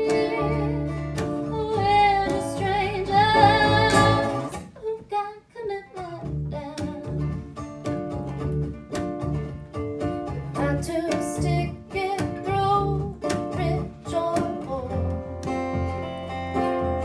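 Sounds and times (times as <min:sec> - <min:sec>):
upright bass: 0:00.0 - 0:04.7, 0:06.1 - 0:17.0
strummed ukulele: 0:00.0 - 0:04.8, 0:06.0 - 0:17.0
woman singing: 0:00.0 - 0:07.1, 0:10.6 - 0:15.2
acoustic guitar: 0:00.0 - 0:17.0.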